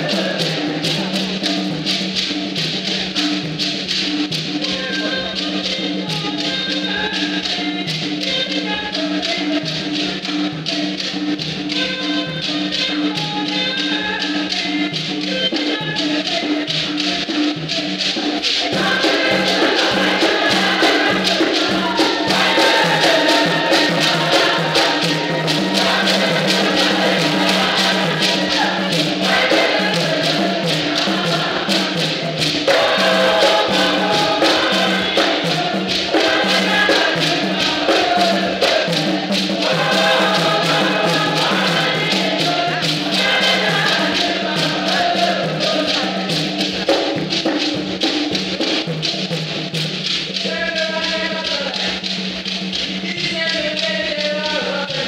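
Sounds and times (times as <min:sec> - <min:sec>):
church choir singing: 0:00.0 - 0:03.4, 0:17.0 - 0:47.8
hand percussion beat: 0:00.0 - 0:55.0.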